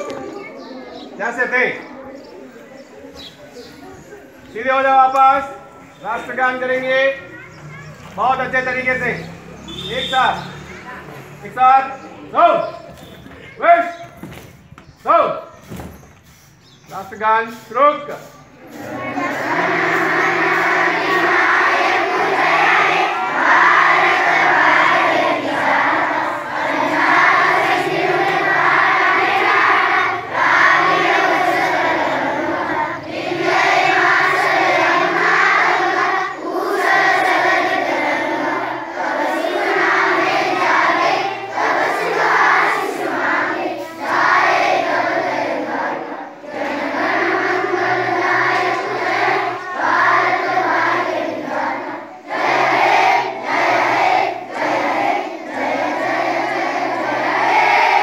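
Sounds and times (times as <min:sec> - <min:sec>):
children singing in unison: 0:18.6 - 0:58.0.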